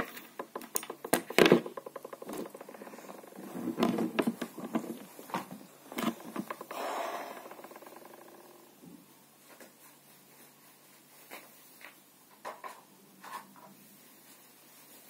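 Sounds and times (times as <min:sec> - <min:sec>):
handling clicks knocks and scraping: 0:00.0 - 0:06.8.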